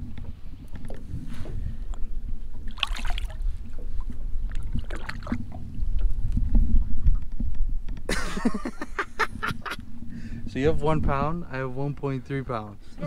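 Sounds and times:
wind buffeting microphone: 0:00.0 - 0:13.0
fish splashing into water: 0:02.6 - 0:03.4.

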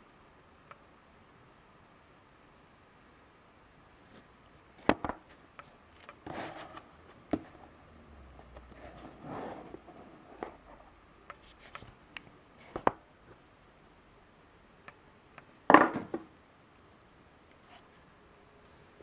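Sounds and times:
cardboard scrape: 0:06.2 - 0:06.9, 0:08.7 - 0:10.8.

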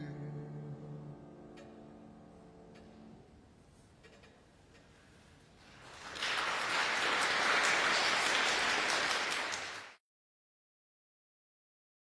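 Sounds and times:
audience applauding: 0:05.6 - 0:10.0.

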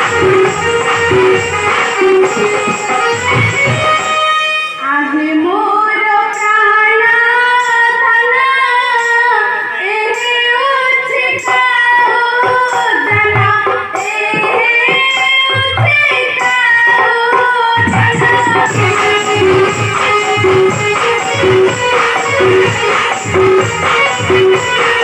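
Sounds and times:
instrumental accompaniment: 0:00.0 - 0:06.6, 0:07.5 - 0:25.0
girl singing over sound system: 0:04.8 - 0:25.0
low drum strokes: 0:17.8 - 0:24.6.

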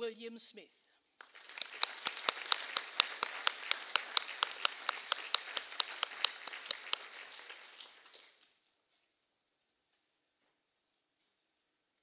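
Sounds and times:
audience applauding: 0:01.2 - 0:08.5
sharp hand claps: 0:01.2 - 0:08.5.

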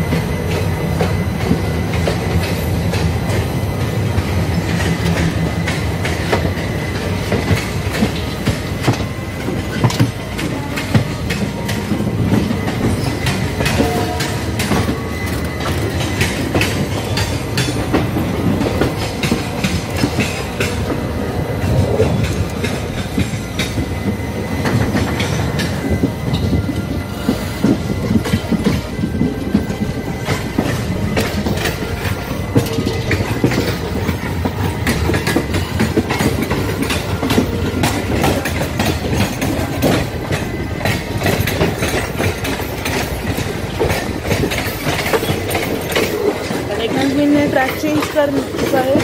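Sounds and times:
train wheels rumbling: 0:00.0 - 0:49.0
clatter over rail joints: 0:04.1 - 0:26.9, 0:27.6 - 0:49.0.

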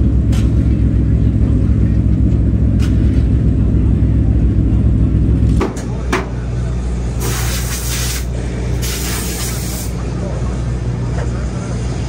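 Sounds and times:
race car engine running: 0:00.0 - 0:12.0
bursts of hiss: 0:07.2 - 0:09.9.

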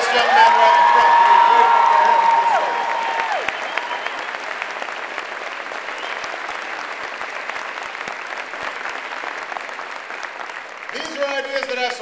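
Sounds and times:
large audience applauding: 0:00.0 - 0:12.0.

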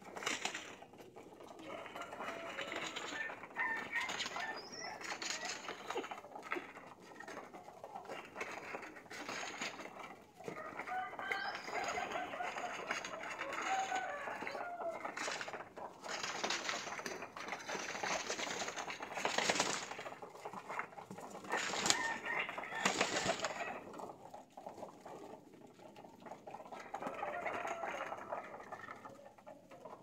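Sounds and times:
pigeons pecking and scuffling: 0:00.0 - 0:30.0
wings rustling: 0:15.2 - 0:20.1.

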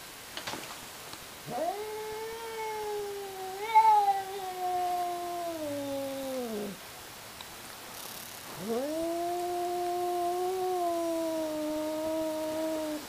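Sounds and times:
cat yowling: 0:01.4 - 0:06.8, 0:08.6 - 0:13.0.

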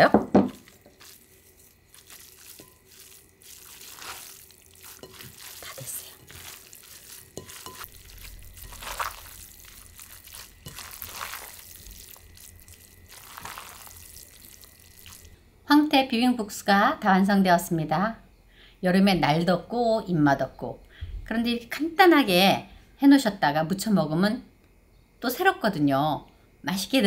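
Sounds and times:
noodles mixed by hand: 0:00.0 - 0:15.4.

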